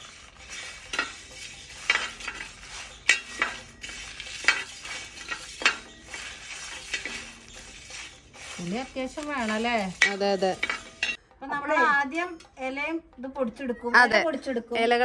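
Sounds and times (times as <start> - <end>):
spoon scraping in a pan: 0.0 - 11.2.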